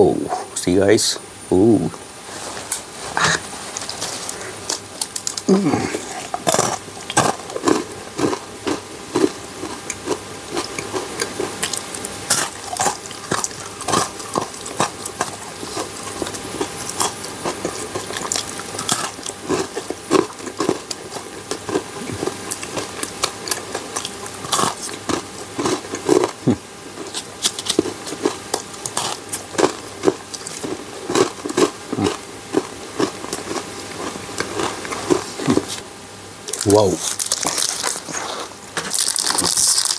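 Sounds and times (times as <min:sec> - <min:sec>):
chewing with wet mouth clicks: 0:06.2 - 0:26.4, 0:27.0 - 0:35.8.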